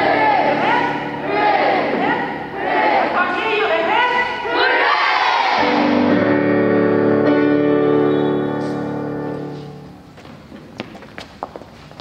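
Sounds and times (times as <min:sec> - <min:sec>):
guitar chord ringing: 0:05.6 - 0:10.1.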